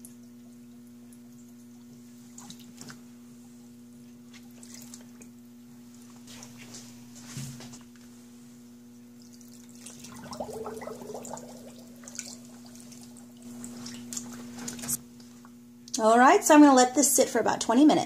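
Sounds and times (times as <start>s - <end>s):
water sloshing in a sink: 0.4s - 3.1s, 4.2s - 5.4s, 9.2s - 15.0s
water gurgling: 9.7s - 15.0s
low hum: 9.9s - 15.0s.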